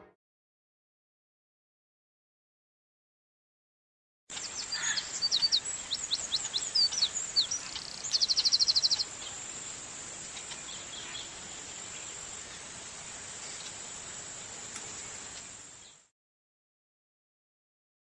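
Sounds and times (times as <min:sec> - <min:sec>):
birds chirping and trilling: 0:04.3 - 0:16.1
high insect buzz: 0:04.3 - 0:16.1.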